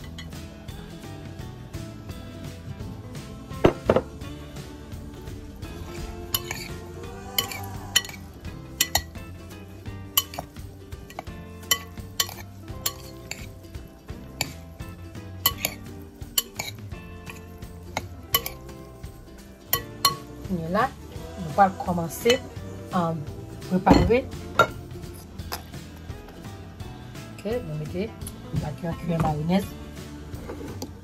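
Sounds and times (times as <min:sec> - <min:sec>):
metal spoon clinking glass bowl: 0:00.0 - 0:00.4, 0:05.9 - 0:09.3, 0:10.1 - 0:13.5, 0:15.4 - 0:19.0, 0:19.7 - 0:20.3.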